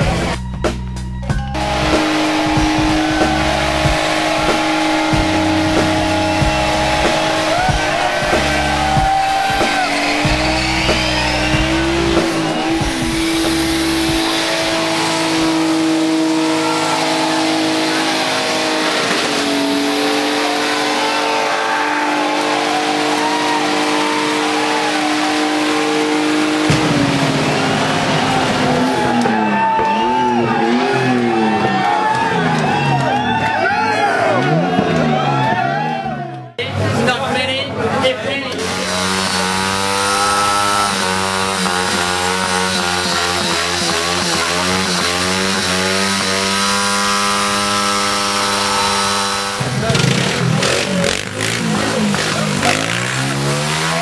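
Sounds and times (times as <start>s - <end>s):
music with pulsing bass: 0.0s - 36.6s, 38.6s - 54.0s
engines revving: 0.0s - 54.0s
tire squeal: 1.3s - 36.1s, 38.6s - 54.0s.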